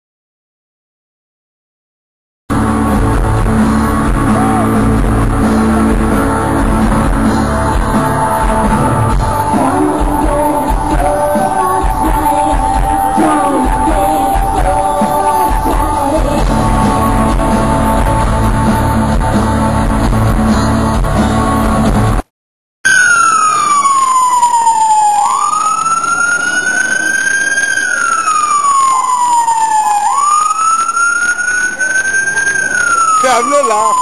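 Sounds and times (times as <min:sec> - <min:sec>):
emergency vehicle siren wailing: 0:02.5 - 0:20.3, 0:22.9 - 0:34.0
loud music: 0:02.5 - 0:22.2.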